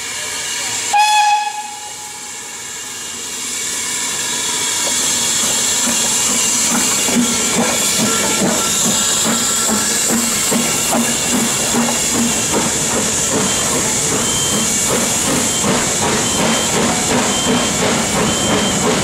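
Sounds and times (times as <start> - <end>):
steam hissing: 0.0 - 19.0
steam engine knocking beat: 4.8 - 19.0.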